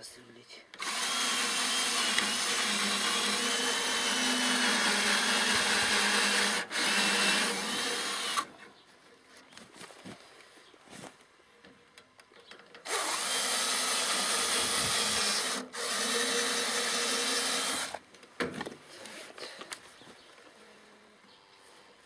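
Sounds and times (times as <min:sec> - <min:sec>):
power drill boring: 0:00.8 - 0:08.5, 0:12.8 - 0:18.0.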